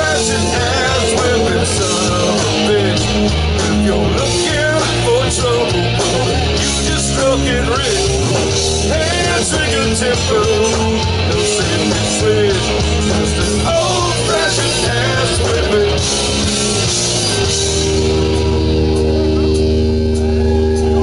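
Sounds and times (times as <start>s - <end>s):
man singing into a microphone: 0.0s - 16.2s
bass guitar: 0.0s - 21.0s
drums: 0.0s - 21.0s
electric guitars: 0.0s - 21.0s.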